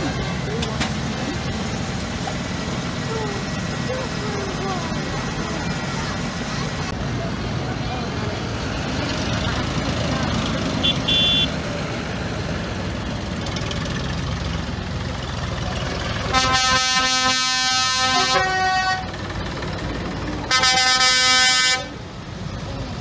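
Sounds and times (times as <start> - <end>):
tractor engines running: 0.0 - 23.0
loud horn: 10.8 - 11.6, 16.2 - 19.1, 20.5 - 22.0.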